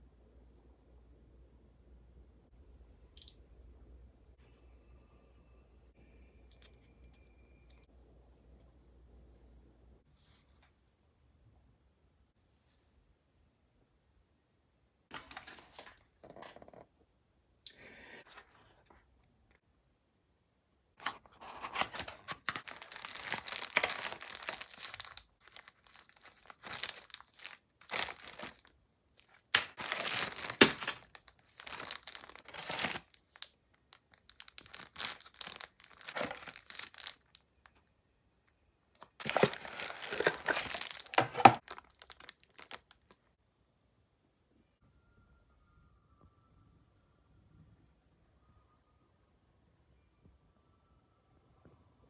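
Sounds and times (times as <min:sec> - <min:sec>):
plastic bags crinkling: 0:21.5 - 0:37.4, 0:39.0 - 0:43.2.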